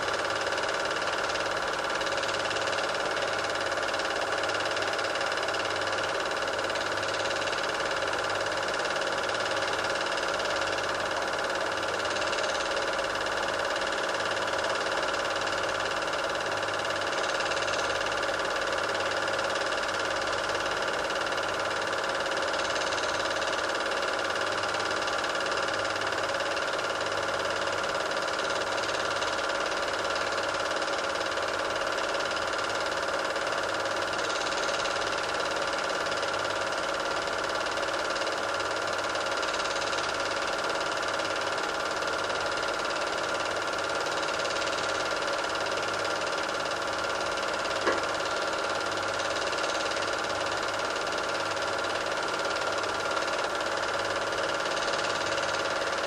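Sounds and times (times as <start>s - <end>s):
film projector whirring: 0.0s - 56.0s.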